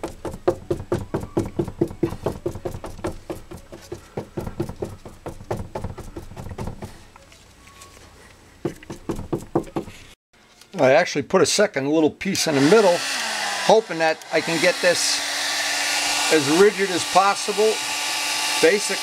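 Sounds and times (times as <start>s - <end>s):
cloth patted into wet epoxy: 0.0s - 7.0s.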